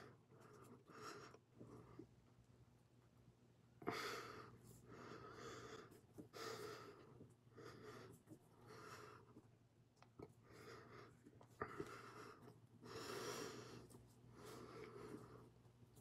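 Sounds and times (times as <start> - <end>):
person breathing hard: 3.8 - 9.4, 10.4 - 15.6.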